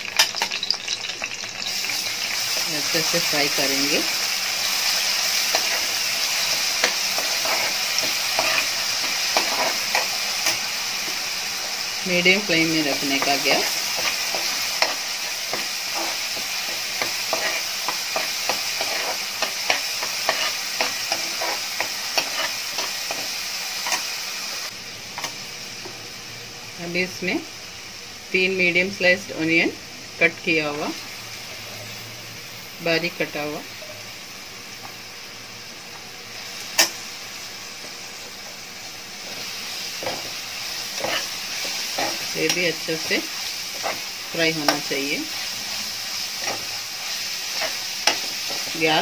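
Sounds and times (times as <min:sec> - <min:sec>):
sizzling in hot oil: 0:00.0 - 0:49.0
spatula scraping a pan: 0:04.9 - 0:11.2, 0:13.0 - 0:24.0, 0:40.0 - 0:48.8.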